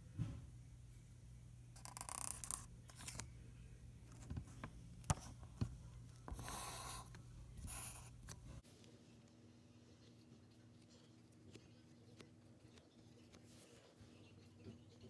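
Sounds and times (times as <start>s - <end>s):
marker scratching on paper: 6.3s - 8.3s.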